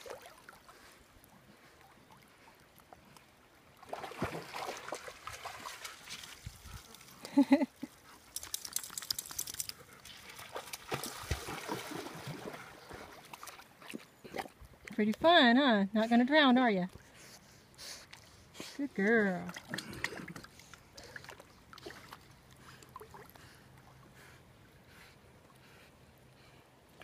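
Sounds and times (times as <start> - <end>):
water splashing around swimming dog: 0.0 - 14.6.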